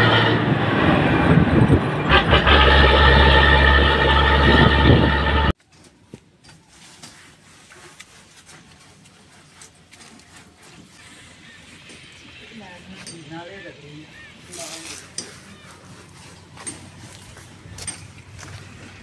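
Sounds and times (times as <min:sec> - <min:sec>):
truck diesel engine running: 0:00.0 - 0:05.6
road noise: 0:00.0 - 0:06.4, 0:08.2 - 0:19.0.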